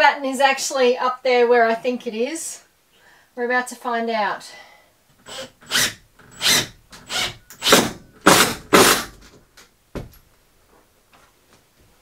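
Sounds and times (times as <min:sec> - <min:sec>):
cordless drill driving screw: 0:05.2 - 0:09.2.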